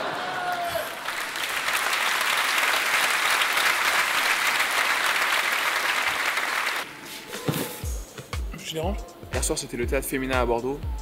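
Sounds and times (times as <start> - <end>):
audience applauding: 0.0 - 6.9.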